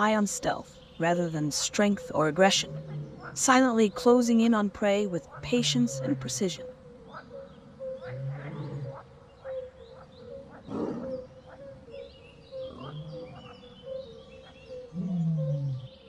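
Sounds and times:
big cat growls: 2.5s - 3.4s, 8.0s - 9.1s, 10.5s - 11.3s, 12.6s - 13.7s, 14.9s - 16.0s.

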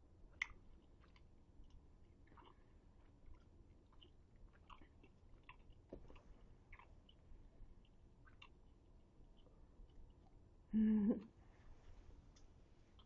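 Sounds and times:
person chewing: 0.3s - 7.2s, 7.8s - 8.6s
wet mouth clicks: 2.3s - 2.6s, 7.8s - 8.6s.

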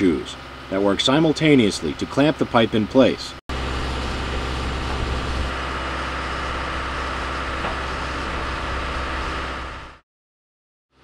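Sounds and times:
hydraulic machine droning hum: 0.0s - 10.0s.

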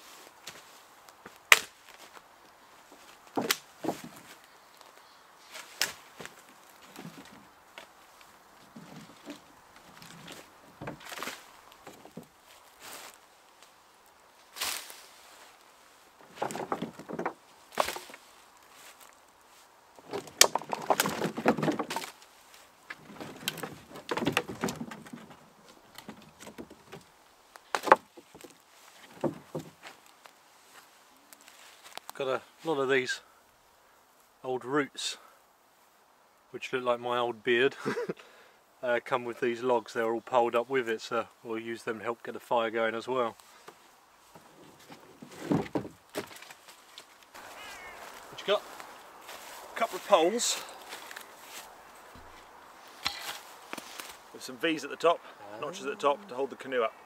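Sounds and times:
logs knocking together: 1.2s - 2.2s, 2.9s - 4.4s, 5.6s - 13.2s, 16.2s - 19.0s, 20.0s - 30.1s, 43.6s - 46.7s.

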